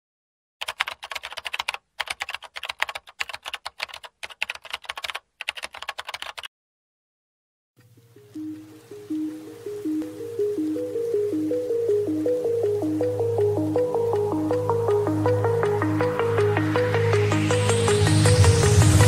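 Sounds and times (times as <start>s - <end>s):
keyboard typing clicks: 0.6s - 6.5s
soft electronic music: 7.8s - 19.0s.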